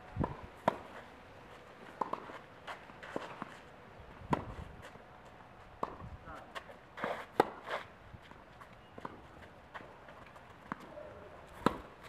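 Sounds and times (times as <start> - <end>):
shoes scuffing on clay: 0.6 - 10.9
tennis ball hitting racket: 2.0 - 2.4, 7.0 - 7.8, 11.5 - 12.0.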